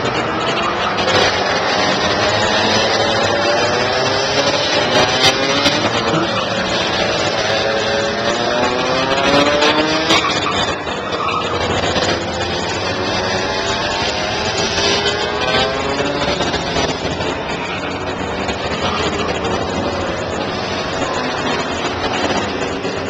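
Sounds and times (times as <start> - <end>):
kart engines revving past: 0.0 - 23.0.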